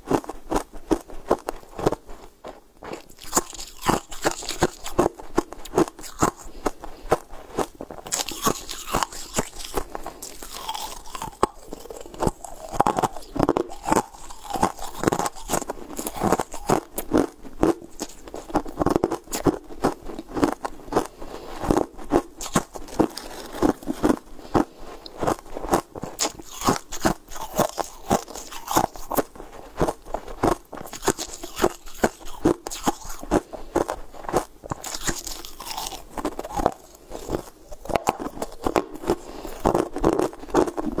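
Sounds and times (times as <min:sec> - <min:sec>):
crunching and chewing ice: 0:00.0 - 0:41.0.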